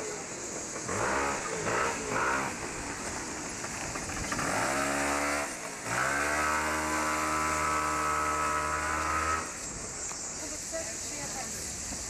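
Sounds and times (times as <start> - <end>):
vehicle engine pulling away: 0.3 - 9.6.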